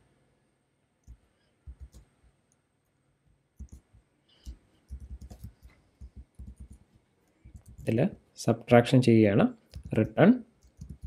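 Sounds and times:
faint keyboard typing: 1.0 - 8.3, 9.6 - 11.0.

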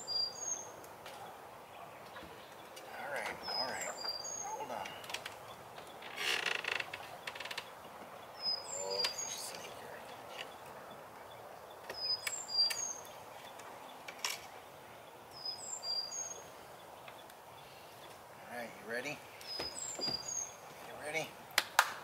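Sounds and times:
sharp knocks of coop fittings: 19.5 - 20.3.

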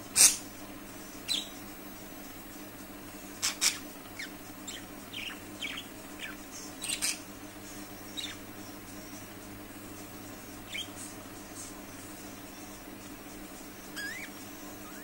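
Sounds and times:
steady low hum: 0.0 - 15.0
budgerigars chirping: 0.2 - 0.4, 3.4 - 7.3, 8.1 - 8.4, 10.7 - 11.0, 14.0 - 15.0.

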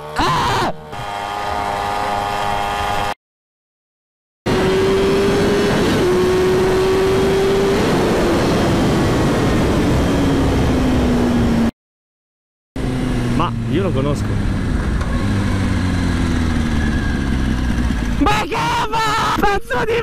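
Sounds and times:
heavy wind noise: 4.6 - 11.7
vehicle engine running: 12.8 - 18.4.

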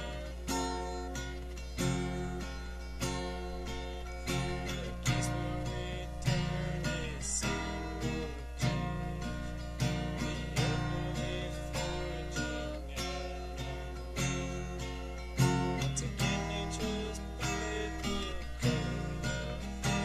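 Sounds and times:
acoustic guitar strumming: 0.0 - 20.0.

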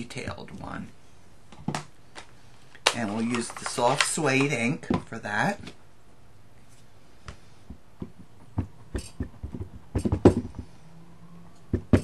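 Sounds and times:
stamp tapping on ink pad: 8.0 - 10.6.

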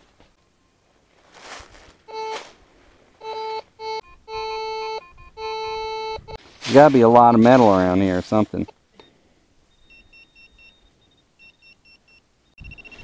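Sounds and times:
metal detector tone: 2.1 - 2.5, 3.2 - 8.0, 8.6 - 13.0.

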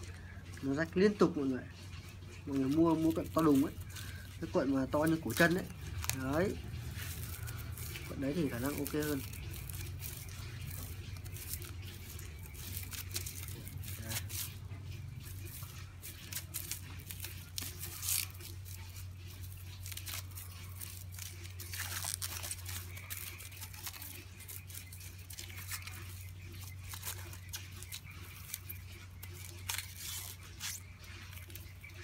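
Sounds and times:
cling film crinkling: 0.0 - 32.0
steady low hum: 0.0 - 32.0.

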